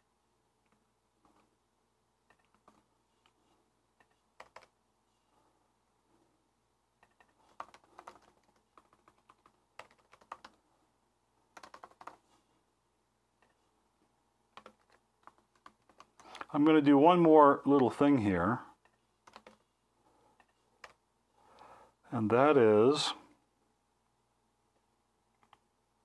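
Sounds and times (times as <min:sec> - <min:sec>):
faint keyboard typing: 0:00.6 - 0:01.6, 0:02.2 - 0:04.8, 0:07.0 - 0:10.7, 0:11.5 - 0:12.5, 0:13.4 - 0:13.7, 0:14.5 - 0:16.7, 0:18.7 - 0:21.7, 0:24.7 - 0:25.7.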